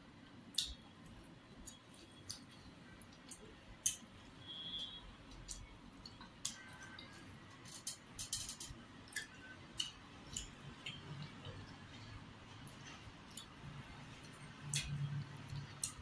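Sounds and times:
eating clicks and smacks: 0:00.2 - 0:16.0.

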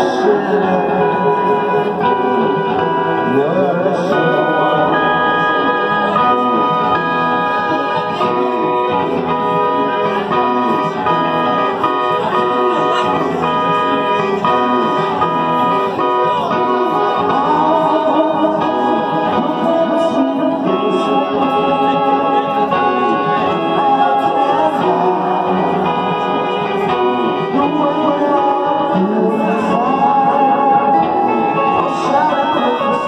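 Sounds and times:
electric keyboard chords: 0:00.0 - 0:33.0
live rock band: 0:00.0 - 0:33.0.

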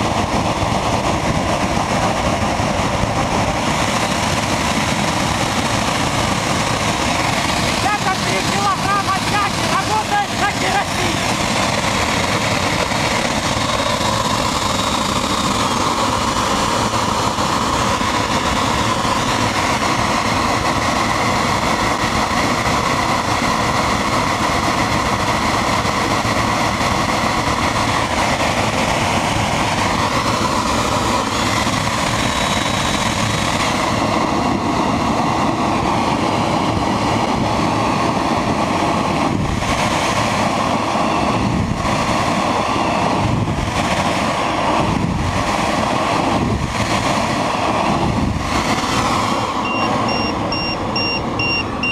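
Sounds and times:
jet engine roaring: 0:00.0 - 0:51.9
faint high whining tones: 0:49.6 - 0:51.9.

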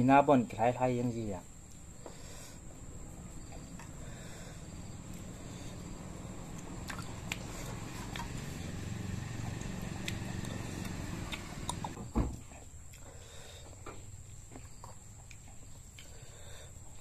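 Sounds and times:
wet chewing: 0:03.5 - 0:12.0, 0:14.4 - 0:17.0.

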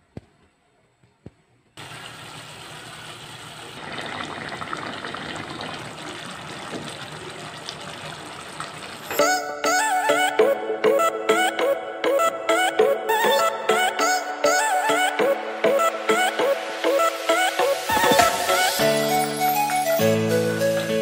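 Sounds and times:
pot bubbling: 0:01.8 - 0:09.2
background music: 0:09.2 - 0:21.0.

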